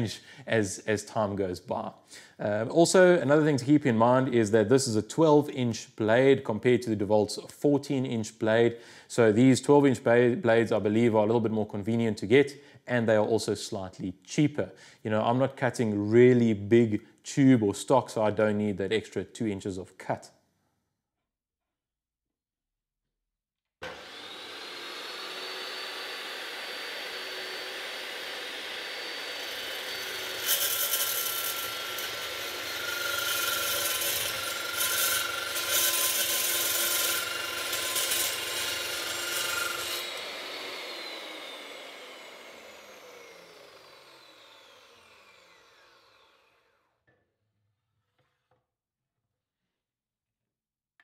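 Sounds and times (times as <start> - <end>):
saw blade cutting steel: 23.8 - 46.7
chop saw motor whining: 23.8 - 46.9.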